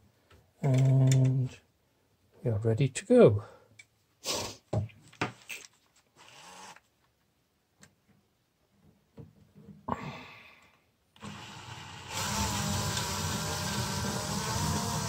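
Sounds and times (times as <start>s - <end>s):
cordless drill whirring: 6.2s - 6.8s, 11.2s - 15.0s.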